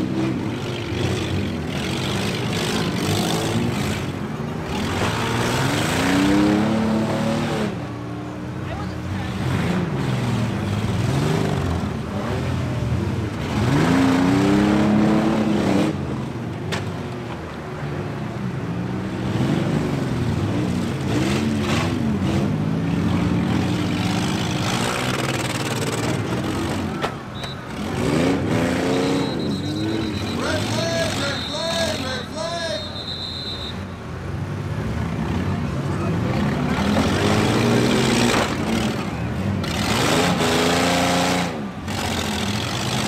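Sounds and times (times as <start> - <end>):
engines running and revving: 0.0 - 43.0.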